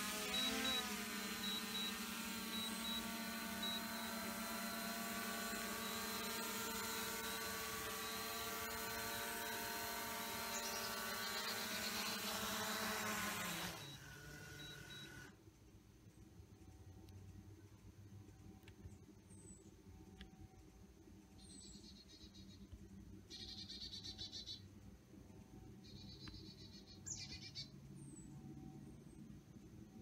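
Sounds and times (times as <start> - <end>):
drone propellers whining: 0.0 - 15.4.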